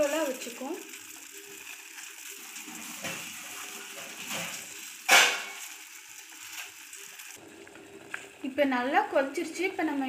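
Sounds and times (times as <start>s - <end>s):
water boiling in saucepan: 0.0s - 10.0s.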